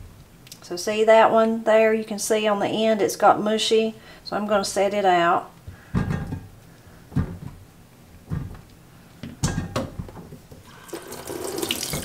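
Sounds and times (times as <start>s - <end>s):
water running into sink: 10.6s - 12.0s.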